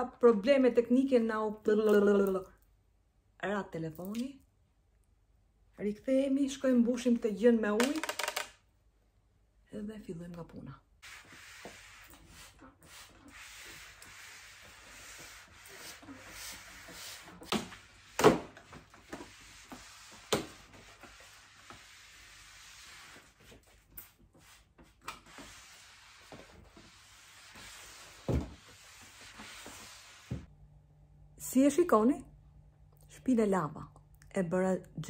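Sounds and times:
mop pad swishing on wooden floor: 11.0 - 30.5.

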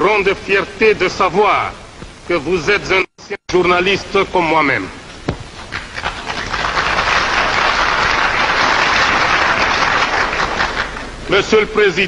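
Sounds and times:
audience applauding: 5.6 - 11.2.

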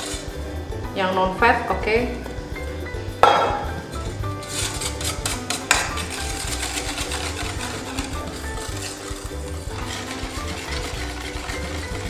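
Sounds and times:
whisk beating in metal bowl: 0.0 - 0.5, 3.8 - 12.0
background music with bass: 0.0 - 12.0.

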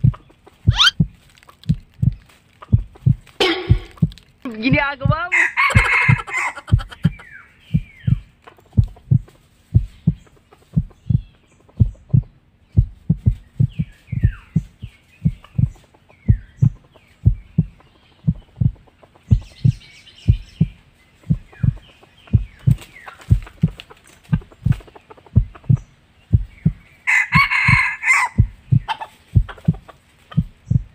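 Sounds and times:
heartbeat-like deep thumps: 0.0 - 30.9
short falling bird chirps: 0.7 - 1.0.

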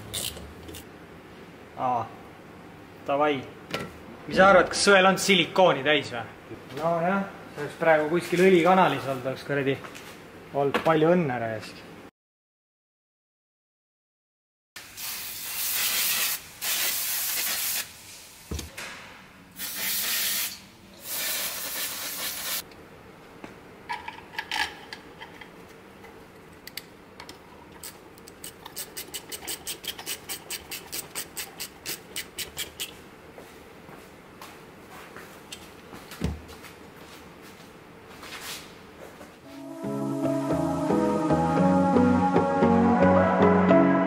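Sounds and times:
aerosol spray hissing: 14.9 - 17.9, 19.6 - 22.6.

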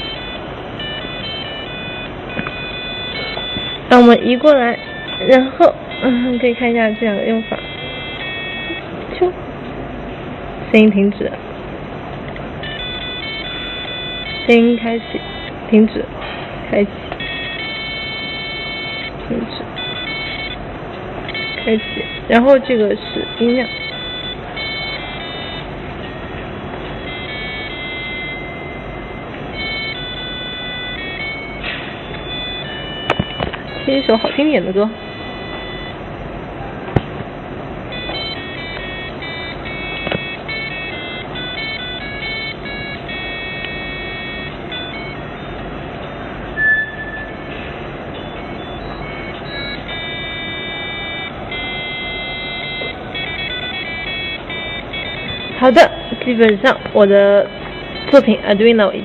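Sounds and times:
tinny beeping electronic melody: 0.0 - 59.0
short loud beep: 46.5 - 49.0.

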